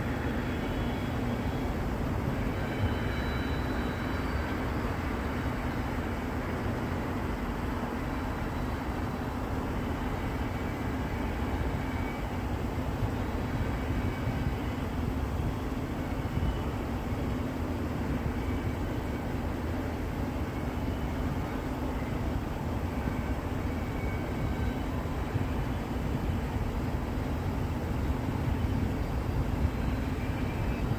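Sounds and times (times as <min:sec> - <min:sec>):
train wheels rumbling on rail: 0:00.0 - 0:30.9
faint high tones: 0:02.3 - 0:07.0.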